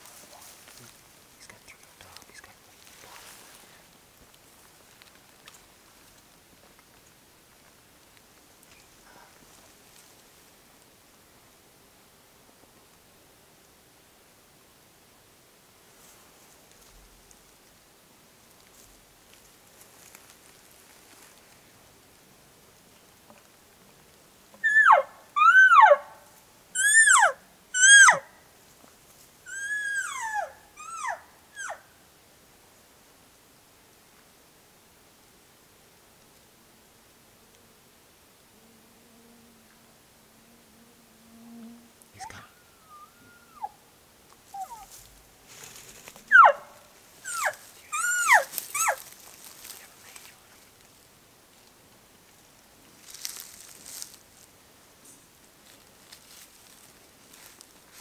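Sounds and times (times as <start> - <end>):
elk mews: 26.8 - 28.2, 29.5 - 31.8, 42.2 - 43.8, 46.3 - 46.6, 47.2 - 49.0
elk mewing: 46.2 - 50.0.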